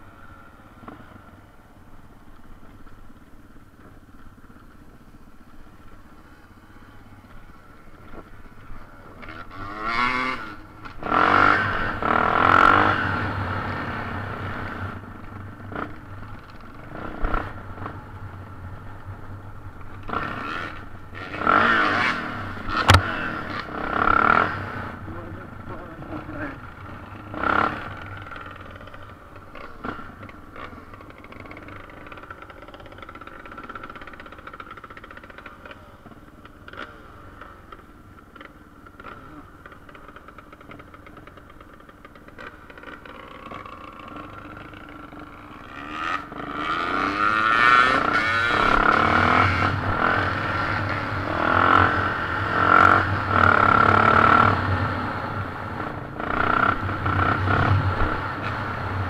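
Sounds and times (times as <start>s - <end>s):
motorcycle engine revving: 2.6s - 59.0s
motorcycle knocks and rattles: 22.6s - 23.3s, 25.2s - 46.1s.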